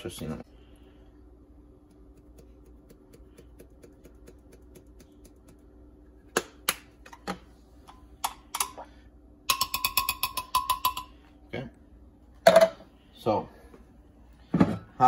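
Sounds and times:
metal spoon clinking against glass: 0:09.5 - 0:11.2.

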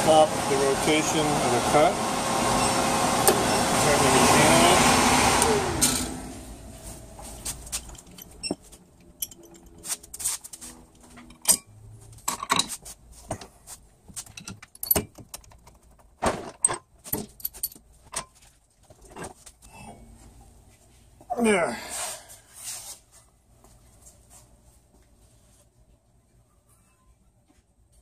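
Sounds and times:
light metallic clinks: 0:07.8 - 0:09.8.

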